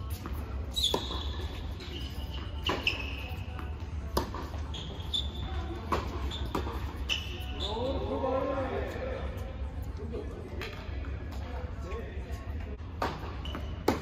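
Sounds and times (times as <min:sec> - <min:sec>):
shoes squeaking on court: 0:00.0 - 0:09.6, 0:10.6 - 0:14.0
tennis balls struck by rackets: 0:00.1 - 0:04.7, 0:05.8 - 0:07.1, 0:12.9 - 0:14.0.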